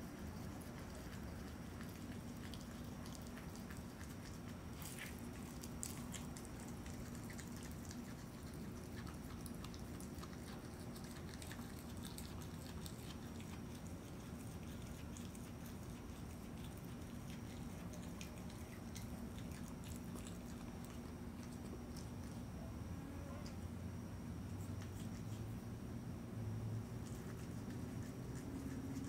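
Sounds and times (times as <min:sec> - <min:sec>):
animal chewing bones: 0:00.0 - 0:22.5
steady low hum: 0:00.0 - 0:29.0.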